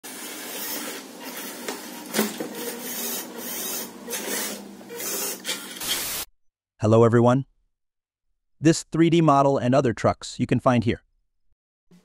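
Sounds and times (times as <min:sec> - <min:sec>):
toy truck motor and gears whirring: 0:00.0 - 0:06.3.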